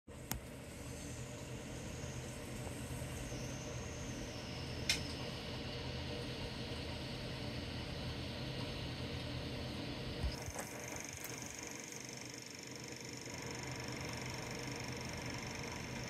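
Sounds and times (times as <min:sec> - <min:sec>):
faint high whine: 0:00.1 - 0:16.0
steady low hum: 0:00.1 - 0:16.0.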